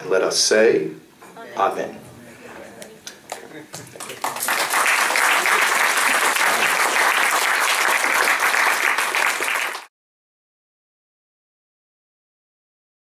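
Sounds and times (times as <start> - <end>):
audience applauding: 3.3 - 9.9.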